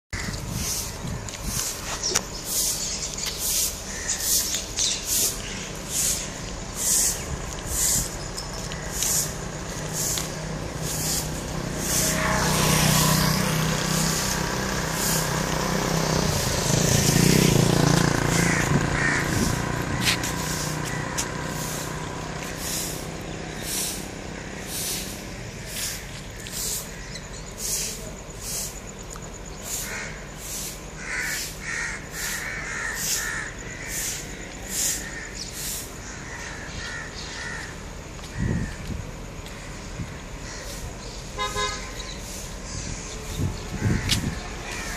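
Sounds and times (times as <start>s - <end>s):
vehicle passing on wet road: 8.8s - 26.8s.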